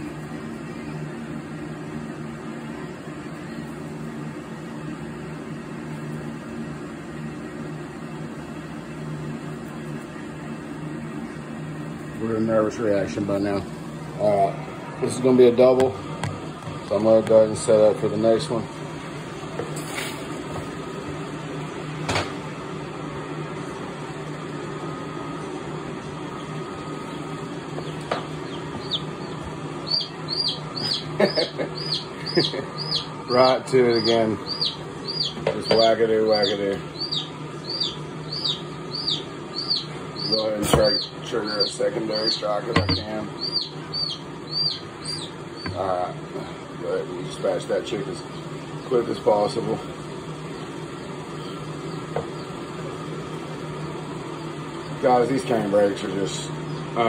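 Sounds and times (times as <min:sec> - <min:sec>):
steady low hum with hiss: 0:00.0 - 0:57.0
baby chick peeping: 0:26.4 - 0:46.0, 0:50.4 - 0:52.6.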